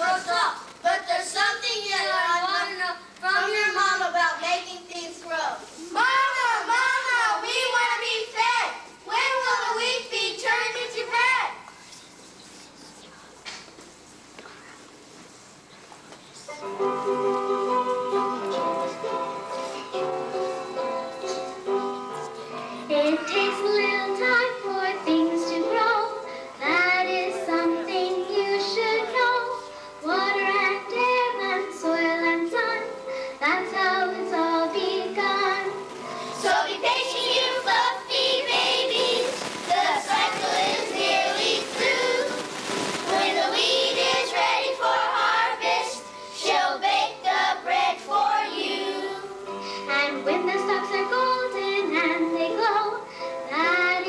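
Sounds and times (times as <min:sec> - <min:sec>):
musical accompaniment: 0:16.5 - 0:54.0
children singing: 0:36.4 - 0:49.3.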